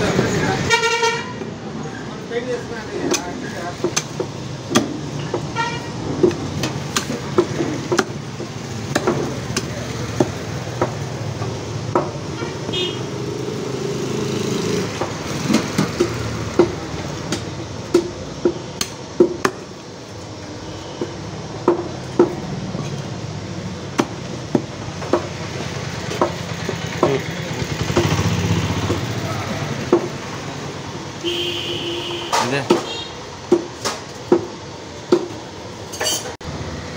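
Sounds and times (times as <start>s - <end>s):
cleaver chopping on wooden block: 3.1s - 5.5s, 6.2s - 11.1s, 14.9s - 19.7s, 23.9s - 25.3s, 26.1s - 27.2s, 32.3s - 35.4s.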